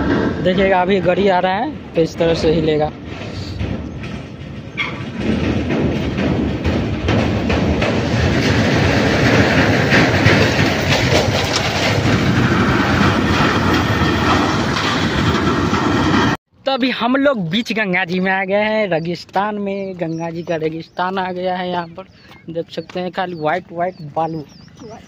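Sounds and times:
metal deck clattering under vehicle: 2.6 - 16.4.

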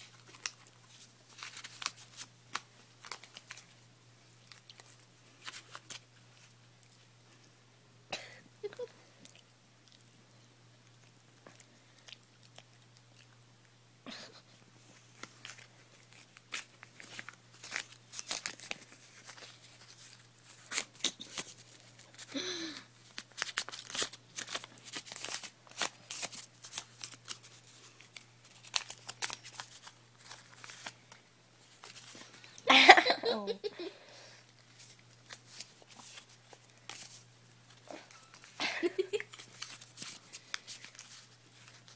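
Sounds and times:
dog chewing and tearing paper: 0.0 - 7.1, 15.0 - 22.3, 23.1 - 32.4, 39.2 - 41.9.

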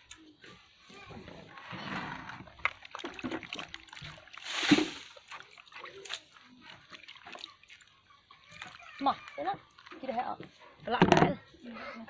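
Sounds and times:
water sloshing in a plastic basin: 1.4 - 11.6.

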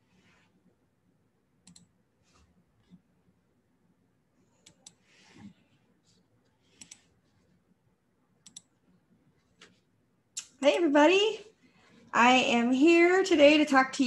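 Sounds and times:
computer clicks: 1.6 - 1.9, 6.7 - 7.1, 8.4 - 8.8.

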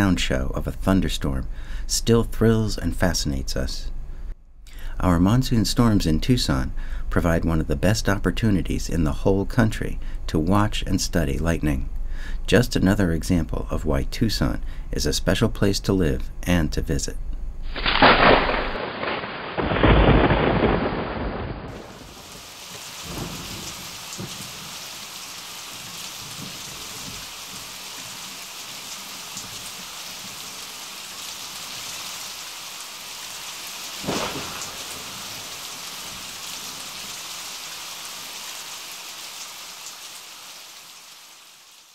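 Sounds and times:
steady rain: 17.7 - 41.9
thunder rumbling: 17.8 - 28.3, 34.0 - 37.2.

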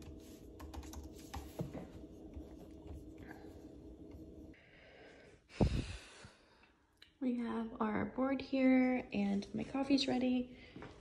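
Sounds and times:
coffee maker humming: 1.5 - 4.6.

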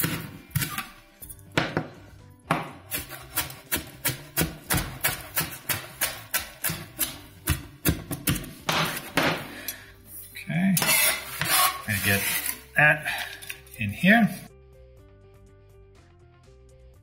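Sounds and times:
background music: 0.0 - 17.0
knife chopping on plastic cutting board: 1.6 - 9.5.

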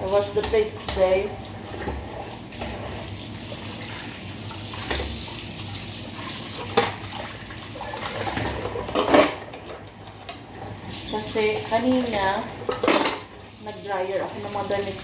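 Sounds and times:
clatter of dishes: 8.1 - 10.4, 12.6 - 13.3.

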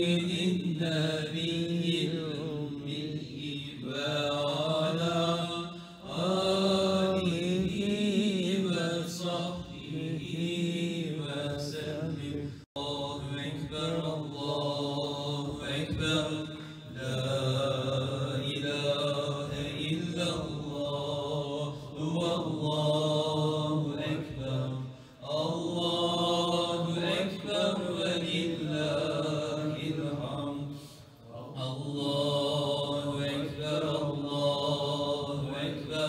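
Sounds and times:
man chanting into a microphone: 0.0 - 36.0.

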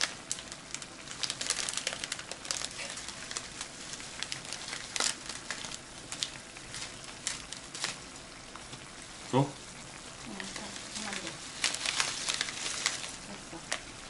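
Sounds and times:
plastic pack crinkling: 0.0 - 8.9, 10.2 - 13.9.

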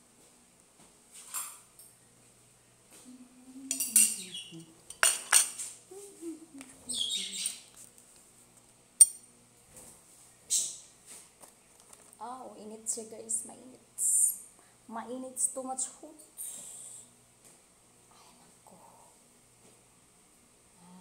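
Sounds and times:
spoon scraping glass plate: 3.7 - 5.6.

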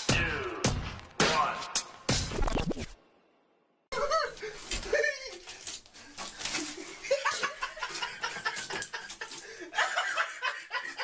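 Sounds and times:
person chuckling: 4.0 - 5.6, 6.6 - 11.0.

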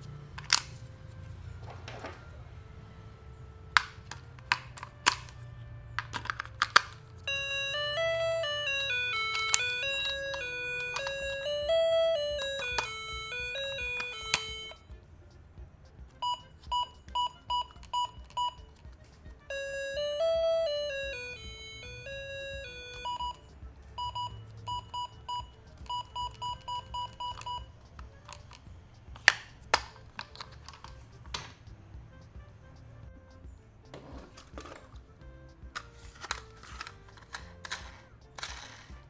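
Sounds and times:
plastic clicks: 0.3 - 2.4, 3.7 - 15.4, 25.6 - 31.8, 35.7 - 38.9
electronic beeping tune: 7.0 - 15.0, 16.2 - 18.8, 19.5 - 28.2
short electronic beeps: 7.3 - 15.0, 16.2 - 18.7, 19.5 - 28.0.

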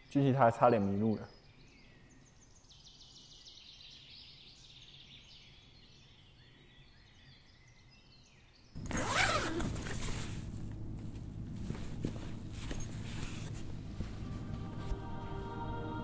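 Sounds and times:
birds chirping faintly: 0.0 - 9.3
low steady hum: 8.8 - 16.0.

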